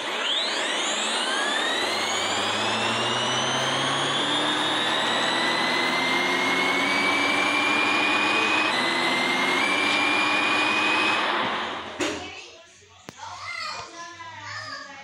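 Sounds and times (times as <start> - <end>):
simulated vehicle rushing whine: 0.0 - 12.0.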